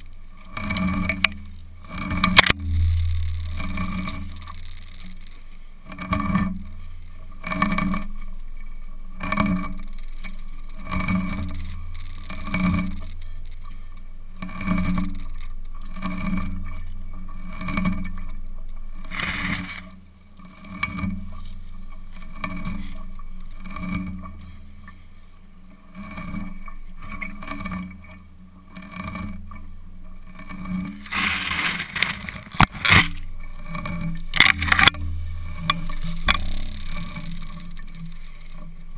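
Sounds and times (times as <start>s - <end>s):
rhythmic thuds and rubbing: 2.3s - 5.4s, 34.1s - 38.9s
branches rustling and snapping: 31.0s - 33.3s.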